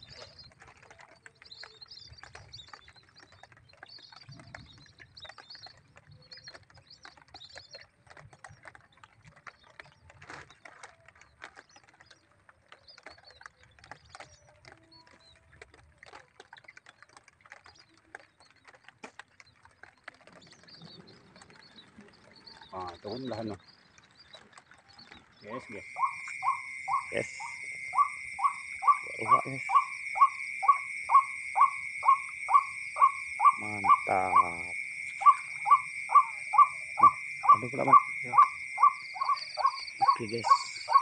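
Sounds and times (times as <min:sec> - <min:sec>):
wind rumbling on microphone: 0:00.0 - 0:10.6
faint high bird calls: 0:24.2 - 0:41.0.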